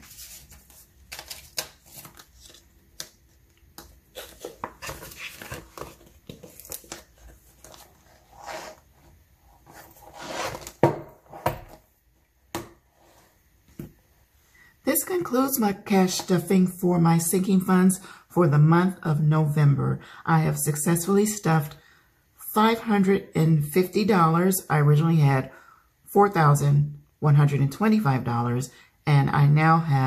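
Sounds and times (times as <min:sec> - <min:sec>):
banknotes and plastic rustling: 0:00.0 - 0:08.0.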